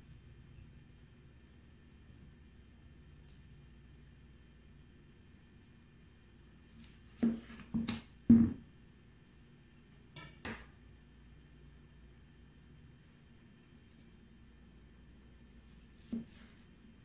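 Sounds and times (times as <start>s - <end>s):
knife knocking on cutting board: 7.2s - 8.6s.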